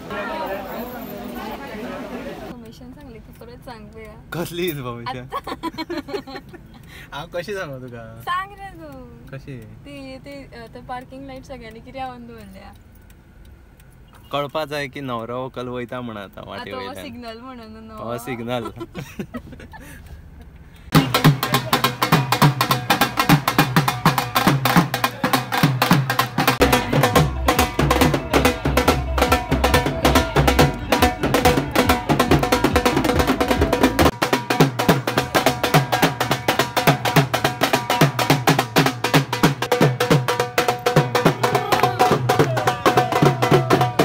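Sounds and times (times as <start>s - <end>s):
fast percussion-heavy music: 20.9s - 44.0s.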